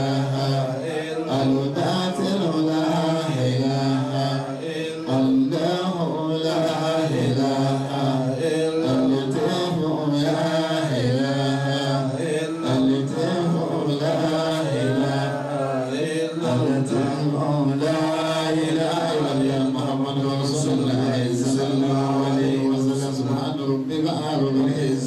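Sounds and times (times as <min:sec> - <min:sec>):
men chanting: 0:00.0 - 0:25.0.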